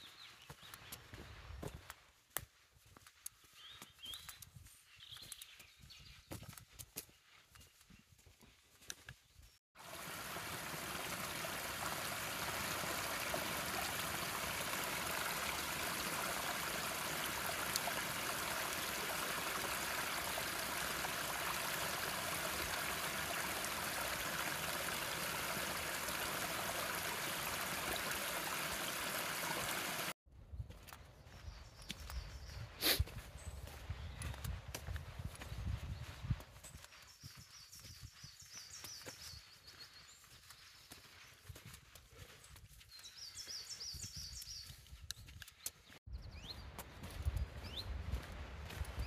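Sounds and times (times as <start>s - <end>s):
stream trickling over rocks: 9.8s - 30.2s.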